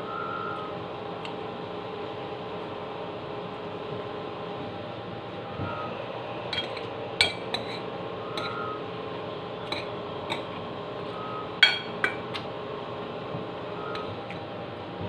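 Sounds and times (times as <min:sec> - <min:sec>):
steady low hum: 0:00.0 - 0:15.0
metal spoon clinking on bowl: 0:06.5 - 0:07.8, 0:09.7 - 0:10.6, 0:11.6 - 0:12.4.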